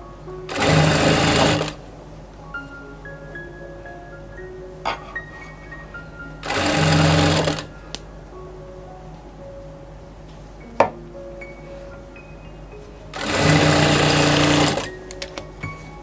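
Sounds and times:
sewing machine stitching: 0:00.5 - 0:01.8, 0:06.4 - 0:07.7, 0:13.2 - 0:14.9.

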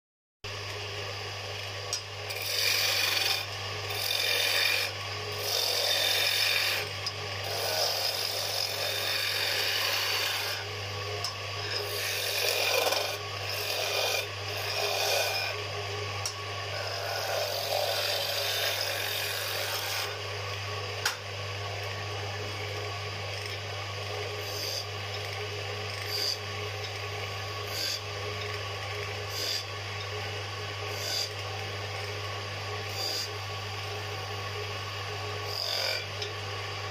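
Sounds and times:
lathe motor humming: 0:00.6 - 0:36.9
cutting tool shaving wood: 0:02.2 - 0:10.7, 0:11.6 - 0:16.0, 0:16.7 - 0:20.2, 0:22.5 - 0:33.4, 0:35.4 - 0:36.2.

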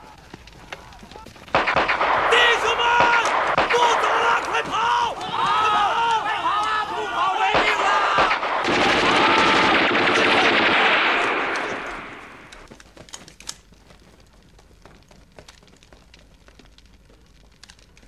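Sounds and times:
rapid automatic gunfire: 0:01.5 - 0:04.4, 0:07.4 - 0:12.6.

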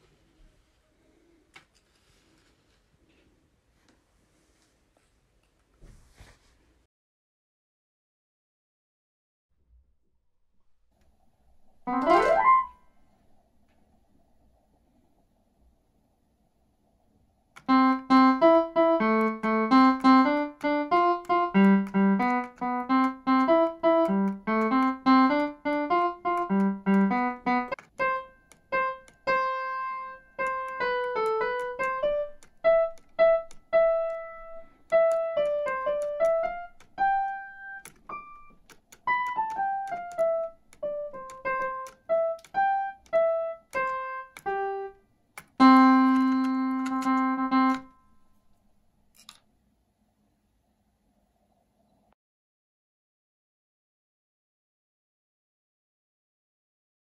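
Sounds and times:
piano melody: 0:11.8 - 0:12.9, 0:17.6 - 0:48.3.

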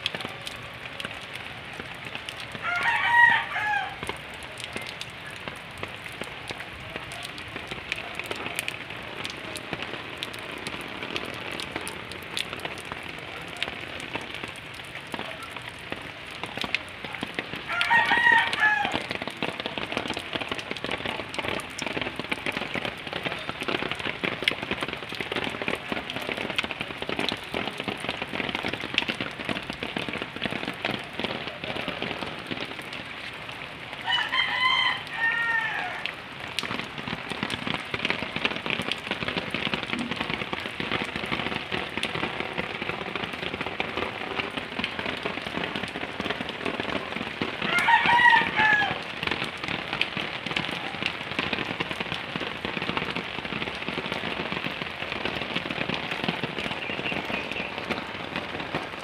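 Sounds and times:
rain pattering on surfaces: 0:00.0 - 0:59.0
rooster crowing: 0:02.6 - 0:04.0, 0:17.7 - 0:19.0, 0:34.0 - 0:36.1, 0:47.6 - 0:49.0.

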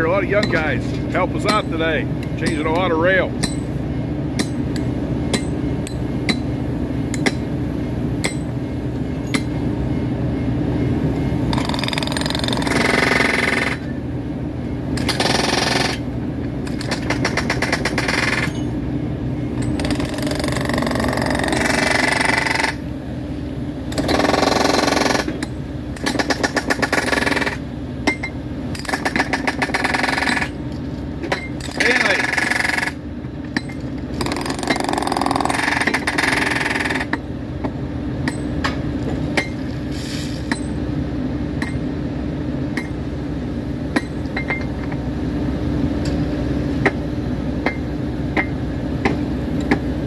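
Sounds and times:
hydraulic tool hammering rail: 0:00.3 - 0:03.8, 0:11.5 - 0:13.9, 0:15.0 - 0:18.7, 0:19.6 - 0:22.9, 0:23.9 - 0:30.6, 0:31.2 - 0:33.0, 0:33.6 - 0:37.2.

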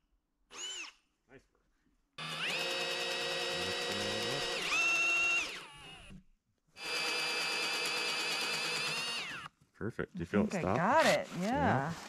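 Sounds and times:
cordless drill boring into wood: 0:00.5 - 0:01.0, 0:02.2 - 0:06.2, 0:06.8 - 0:09.5.

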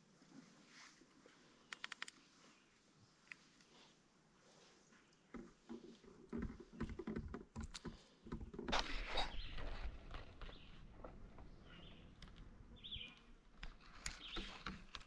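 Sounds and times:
handling knocks and clicks: 0:05.2 - 0:15.0
brief rustle: 0:07.8 - 0:12.4.

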